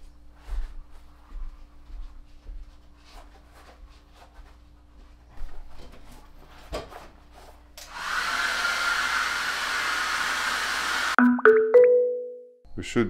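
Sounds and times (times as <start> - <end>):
hair dryer blowing: 7.8 - 11.2.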